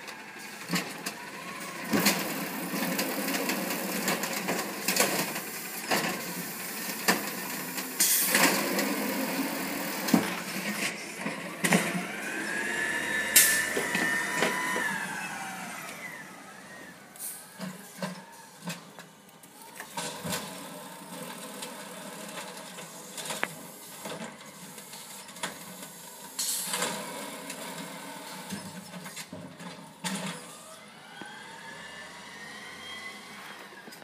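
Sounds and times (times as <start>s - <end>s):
garbage truck diesel engine running: 0.0s - 19.8s
truck whine pulling away: 0.0s - 22.3s, 30.4s - 34.0s.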